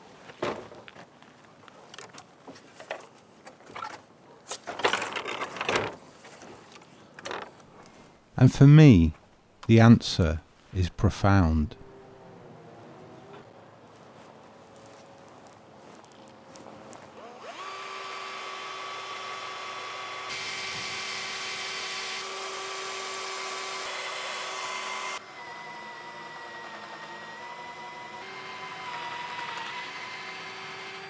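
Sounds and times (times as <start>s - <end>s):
cordless drill whining: 17.2s - 31.0s.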